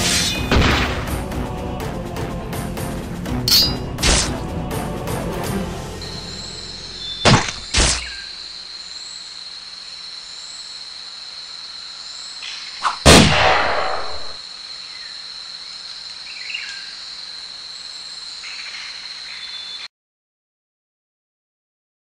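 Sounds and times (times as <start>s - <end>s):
crickets and insects chirring: 5.5s - 19.9s
sharp bangs: 12.9s - 14.4s
loud boom: 13.1s - 14.4s.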